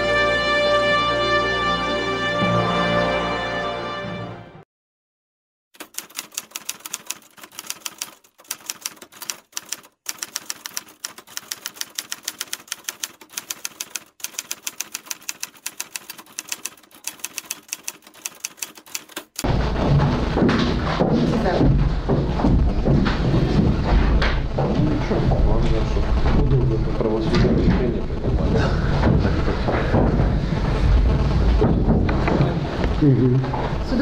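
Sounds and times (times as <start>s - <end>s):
typewriter keys clacking: 5.8s - 19.4s
room noise: 19.0s - 34.0s.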